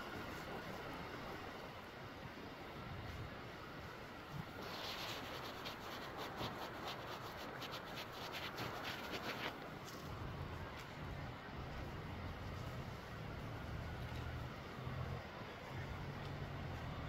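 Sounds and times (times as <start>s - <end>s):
scratchy rubbing scrapes: 4.5s - 10.0s.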